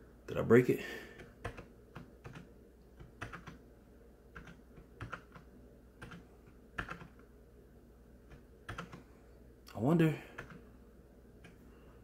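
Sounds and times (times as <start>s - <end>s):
keyboard keystrokes: 1.2s - 3.6s, 4.3s - 6.2s, 6.8s - 7.2s, 8.3s - 9.0s.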